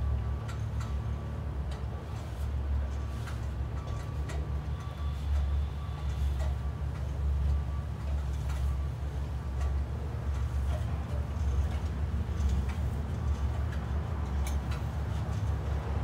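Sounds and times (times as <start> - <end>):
ladder rungs clicking and knocking: 9.6 - 16.0.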